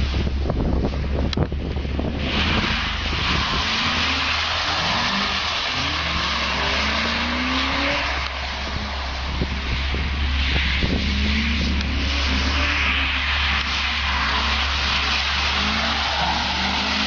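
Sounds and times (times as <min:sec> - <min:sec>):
wind rumble on microphone: 0:00.0 - 0:04.2, 0:07.0 - 0:13.7
car engine revving: 0:00.0 - 0:17.0
tyres hissing on wet surface: 0:02.2 - 0:17.0.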